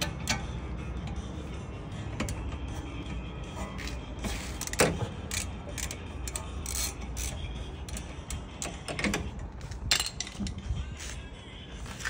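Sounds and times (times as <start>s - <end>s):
ratchet metallic clicks: 4.6s - 10.6s.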